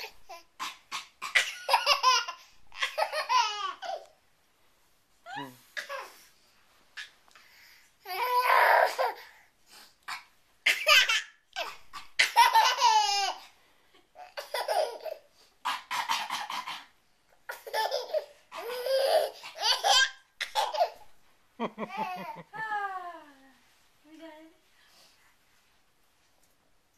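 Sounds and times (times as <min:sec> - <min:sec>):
toddler laughing: 0:00.0 - 0:04.1, 0:10.7 - 0:13.4, 0:14.2 - 0:15.3, 0:17.5 - 0:21.1, 0:21.7 - 0:22.7.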